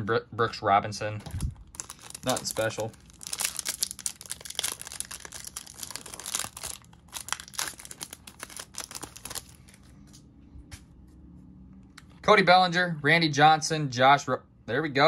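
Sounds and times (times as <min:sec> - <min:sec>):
plastic wrapper crinkling and tearing: 0:01.2 - 0:09.9.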